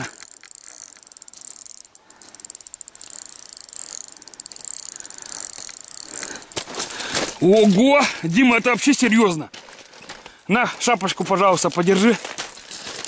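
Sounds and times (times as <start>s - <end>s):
fishing reel drag clicking: 0.0s - 6.7s.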